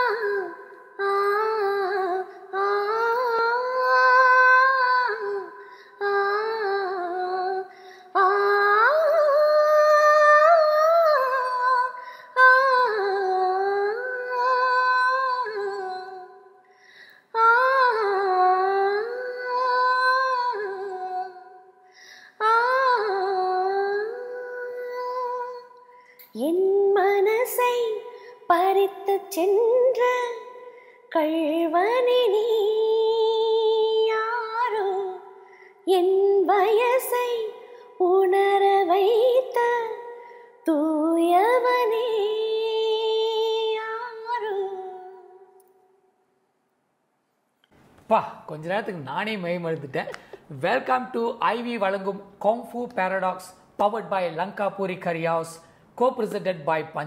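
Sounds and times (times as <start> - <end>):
woman singing unaccompanied: 0.0 - 16.6, 17.3 - 21.7, 22.3 - 45.6.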